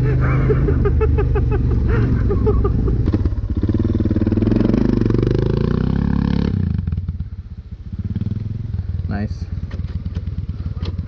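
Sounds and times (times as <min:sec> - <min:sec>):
motorcycle engine idling: 0:00.0 - 0:04.6, 0:06.8 - 0:11.0
motorcycle engine revving: 0:00.0 - 0:11.0.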